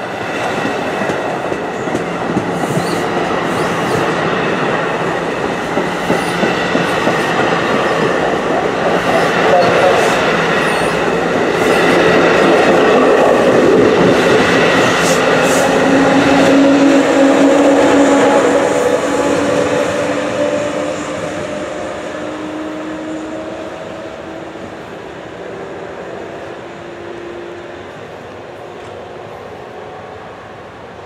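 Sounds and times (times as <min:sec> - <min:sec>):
electric locomotive hum: 0:00.0 - 0:31.0
passenger train rushing past: 0:00.0 - 0:31.0
train wheels clattering over rail joints: 0:05.3 - 0:10.0.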